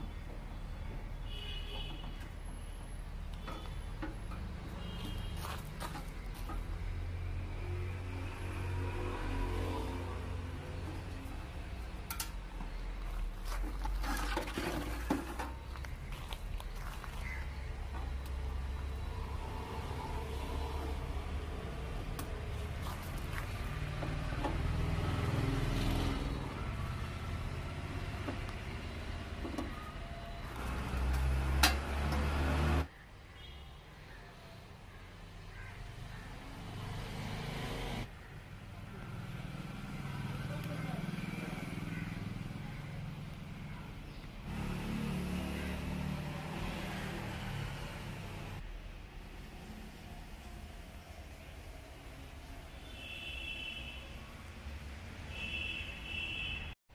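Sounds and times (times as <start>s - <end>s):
vehicle engine rumble: 0.0s - 32.9s.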